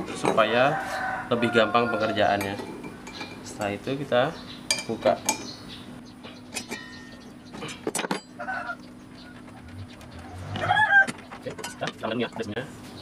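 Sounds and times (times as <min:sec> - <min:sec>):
metal clinks and knocks: 0:06.5 - 0:08.4, 0:10.6 - 0:12.2.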